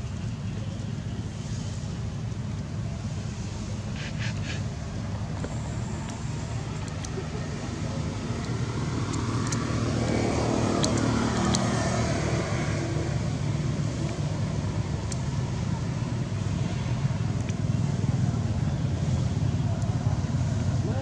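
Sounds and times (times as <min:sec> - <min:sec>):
motor vehicle passing: 0:03.3 - 0:21.0
steady low rumble: 0:04.6 - 0:21.0.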